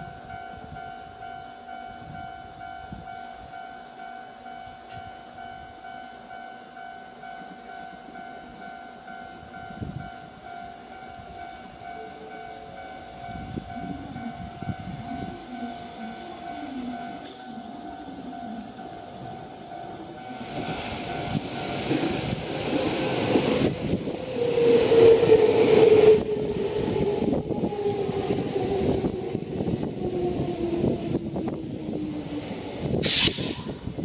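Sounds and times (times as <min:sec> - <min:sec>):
electric train running: 0:12.7 - 0:34.0
sharp hissing burst: 0:33.0 - 0:34.0.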